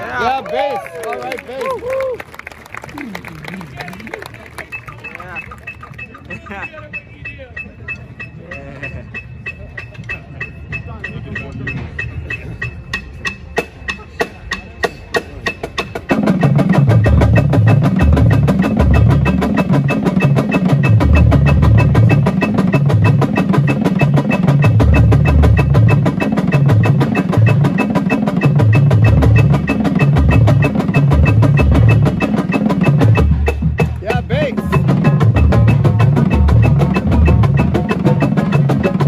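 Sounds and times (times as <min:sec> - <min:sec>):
drum line playing: 0:00.0 - 0:39.0
heavy bass drum strokes: 0:16.0 - 0:39.0.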